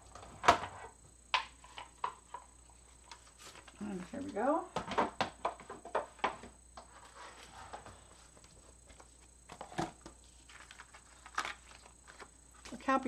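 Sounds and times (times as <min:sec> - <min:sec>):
paper rustling: 0:06.9 - 0:12.7.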